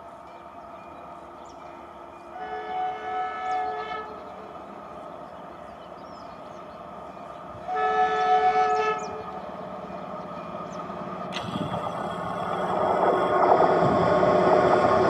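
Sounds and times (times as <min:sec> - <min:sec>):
locomotive running noise: 0:00.0 - 0:15.0
locomotive horn blast: 0:02.3 - 0:04.3, 0:07.6 - 0:09.4.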